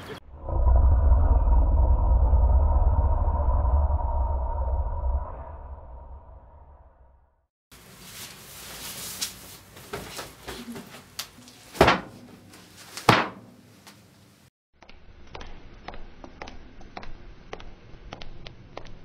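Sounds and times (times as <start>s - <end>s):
rustling and handling noises: 7.8s - 13.1s.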